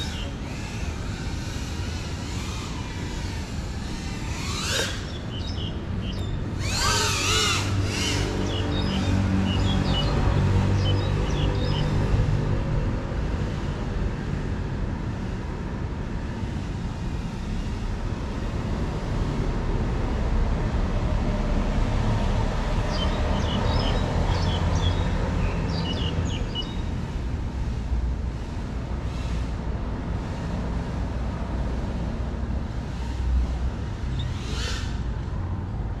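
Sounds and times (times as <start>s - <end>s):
bird chirps: 4.9s - 6.9s, 8.0s - 10.2s, 10.8s - 12.0s, 22.9s - 26.9s.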